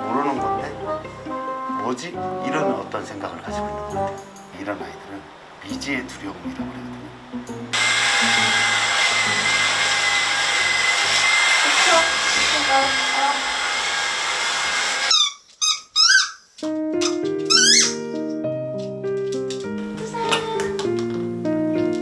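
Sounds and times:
background music: 0.0s - 11.2s, 16.6s - 22.0s
vacuum cleaner whining: 7.8s - 15.4s
squeaky dog toy: 15.1s - 18.2s.

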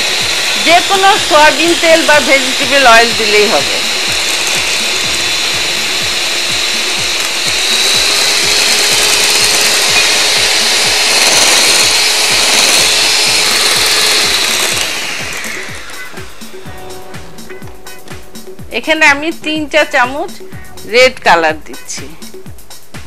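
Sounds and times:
electric hand mixer whining: 0.0s - 17.7s.

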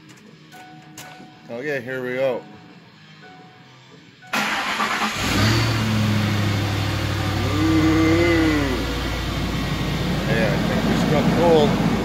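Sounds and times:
engine fast idle: 4.4s - 12.0s.

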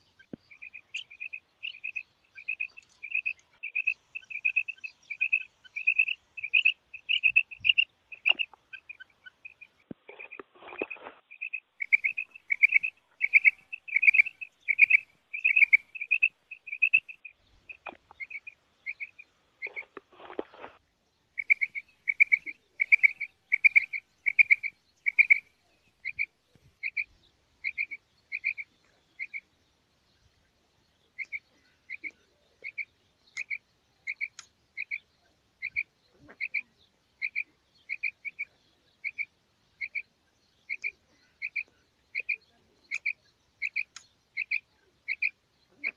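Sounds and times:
quail chirping: 0.0s - 20.8s, 21.4s - 29.5s, 31.2s - 35.0s, 35.6s - 40.1s, 40.7s - 45.9s
scratchy rustle: 10.0s - 11.3s, 19.7s - 20.8s.

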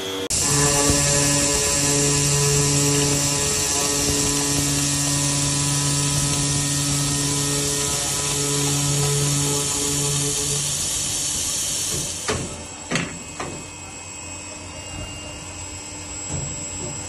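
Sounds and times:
circular saw cutting steel: 0.0s - 12.3s
machine running: 0.0s - 16.4s.

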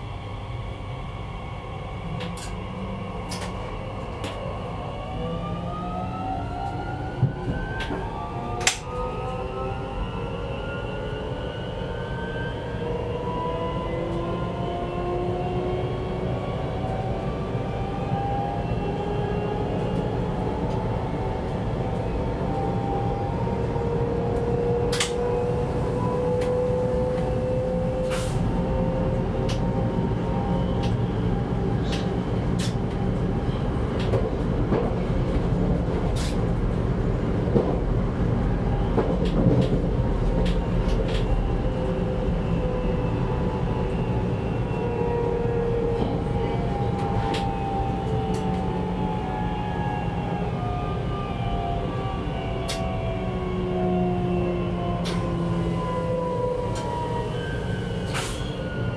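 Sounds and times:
wheels rumbling on rail: 0.0s - 58.9s.

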